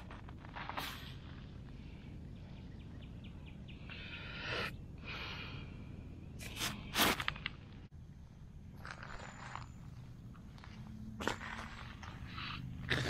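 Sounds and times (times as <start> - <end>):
glass bottle scraping on gravel: 8.8 - 13.0.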